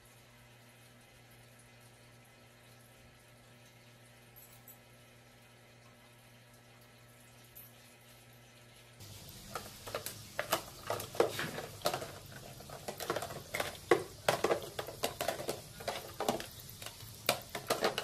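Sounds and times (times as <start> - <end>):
plastic toy dishes clattering: 9.4 - 18.0.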